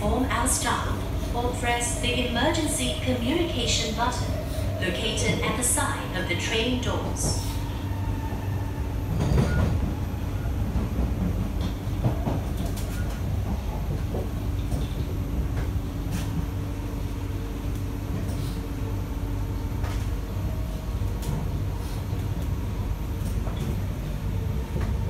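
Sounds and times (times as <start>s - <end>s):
train rumble and hum: 0.0s - 25.0s
sharp clicks from train wheels: 10.8s - 16.4s.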